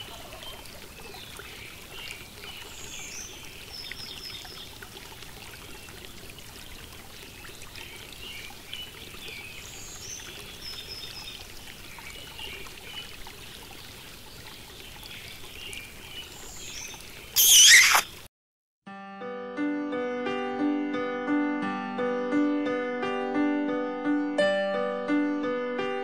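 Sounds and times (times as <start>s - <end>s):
birds chirping: 14.8s - 18.2s
loud hissing burst: 17.4s - 18.1s.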